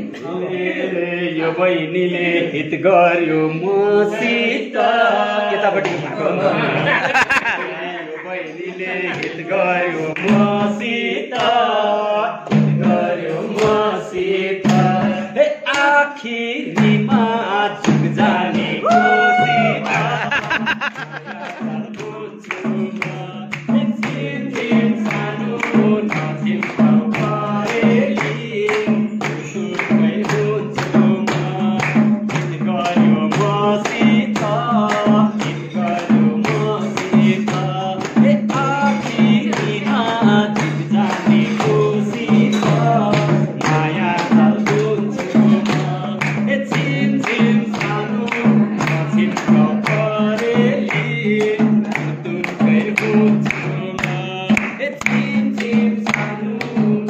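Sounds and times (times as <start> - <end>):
men singing folk song: 0.0 - 57.0
hand clapping: 9.1 - 9.4, 10.1 - 10.6, 11.3 - 11.6, 15.7 - 16.0, 18.8 - 57.0.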